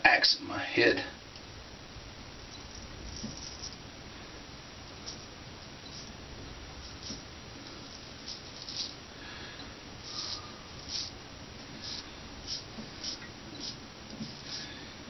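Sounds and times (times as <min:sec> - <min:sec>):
razor scraping stubble: 0:06.8 - 0:09.0, 0:10.0 - 0:14.8.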